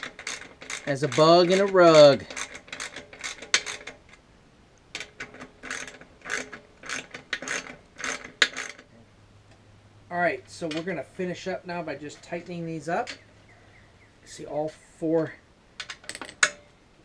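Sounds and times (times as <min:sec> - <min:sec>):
ratcheting wrench clicking: 0:00.0 - 0:04.0, 0:04.9 - 0:08.9.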